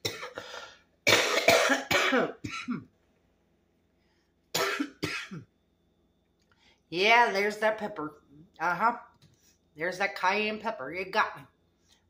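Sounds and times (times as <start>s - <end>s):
woman coughing hard: 0.0s - 2.9s, 4.5s - 5.5s.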